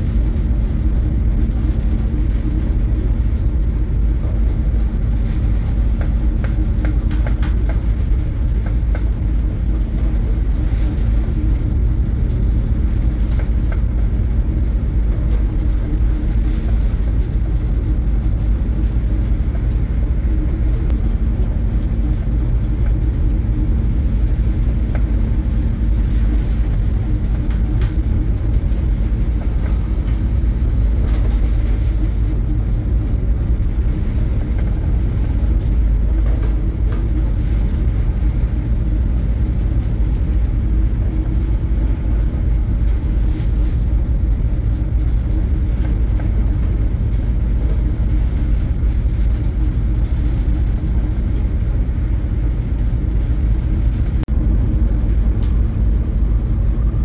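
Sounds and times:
ship engine drone: 0.0s - 57.0s.

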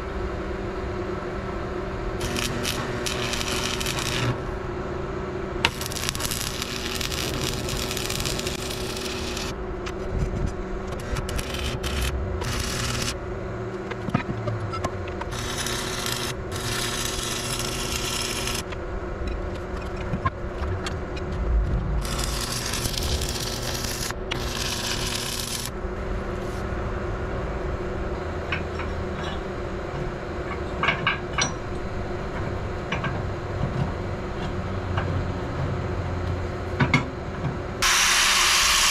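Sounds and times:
steady hum: 0.0s - 38.9s
welding arc crackling: 2.2s - 4.5s, 5.6s - 14.0s, 14.7s - 18.8s, 20.8s - 25.8s, 37.8s - 38.9s.

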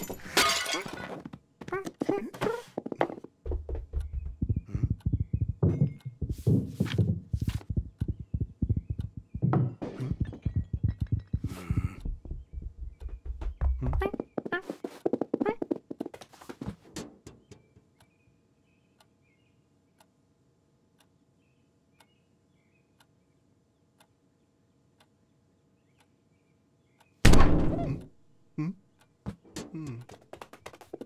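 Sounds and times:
small knocks: 2.8s - 17.9s
faint ticking: 4.0s - 15.7s
faint chirps: 7.5s - 14.3s.

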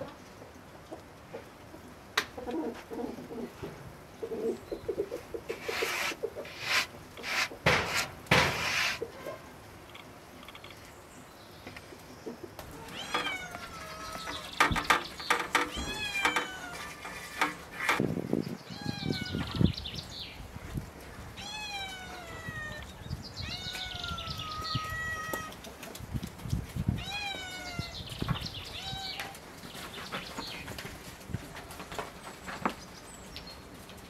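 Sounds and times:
cat meowing: 12.7s - 14.5s, 15.7s - 17.0s, 21.4s - 25.5s, 27.0s - 28.0s
light clicks and knocks: 12.9s - 18.0s.

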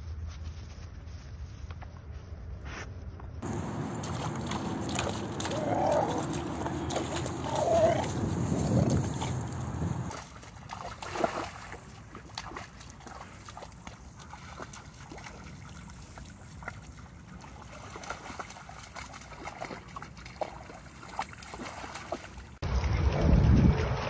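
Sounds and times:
dog splashing in shallow water: 3.4s - 24.0s.

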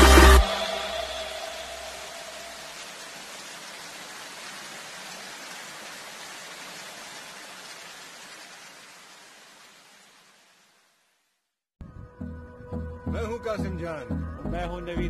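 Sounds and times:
steady hiss: 0.0s - 11.2s.

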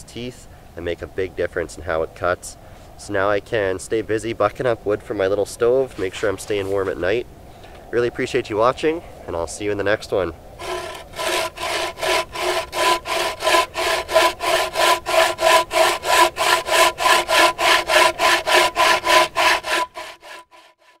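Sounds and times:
bow saw cutting log: 10.6s - 21.0s.

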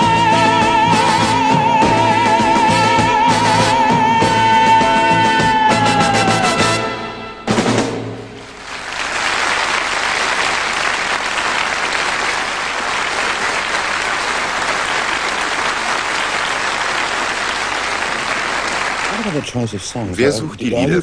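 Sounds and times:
audience applauding: 8.4s - 21.0s.

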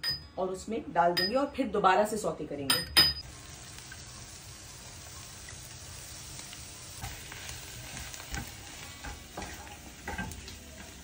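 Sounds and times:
vegetables sizzling in a frying pan: 3.2s - 11.0s.

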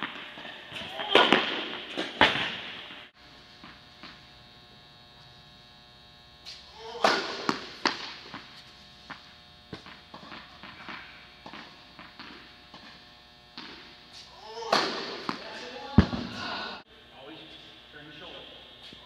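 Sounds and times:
steady hum: 0.0s - 19.0s
tennis ball hits echoing: 7.0s - 8.4s, 14.6s - 16.4s.

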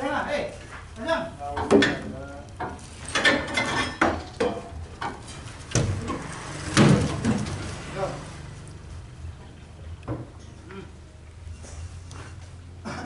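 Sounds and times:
logs knocking against each other: 1.5s - 7.6s.

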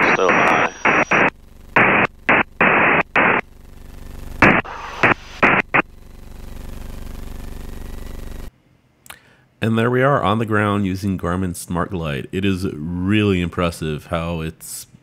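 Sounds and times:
radio static bursts: 0.0s - 8.5s.

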